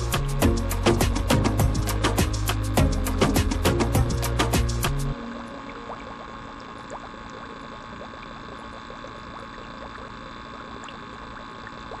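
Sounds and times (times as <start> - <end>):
stream trickling: 5.1 - 12.0.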